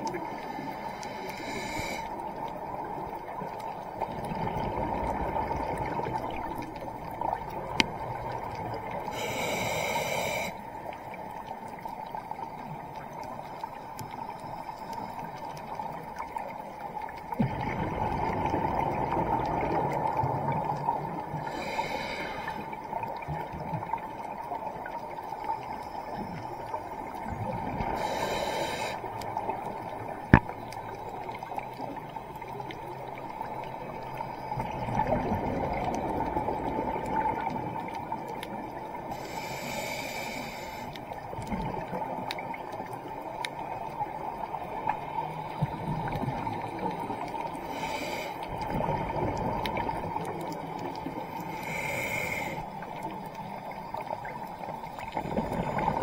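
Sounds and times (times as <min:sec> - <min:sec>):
regulator bubbling exhaust underwater: 0:45.5 - 0:56.0.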